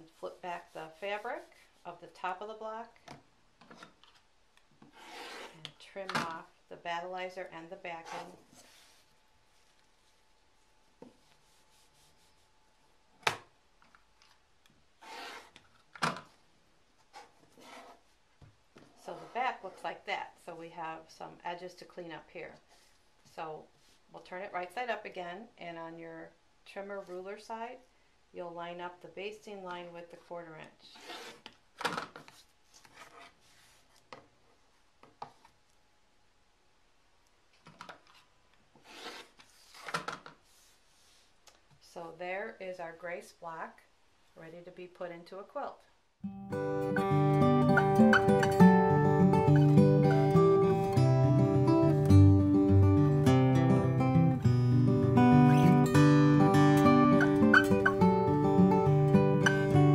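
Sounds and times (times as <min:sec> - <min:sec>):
ruler and fabric scraping: 0:00.0 - 0:01.8, 0:04.8 - 0:05.7, 0:07.9 - 0:09.1, 0:15.0 - 0:15.6, 0:17.0 - 0:18.1, 0:30.9 - 0:31.6, 0:32.2 - 0:34.1, 0:38.1 - 0:41.3.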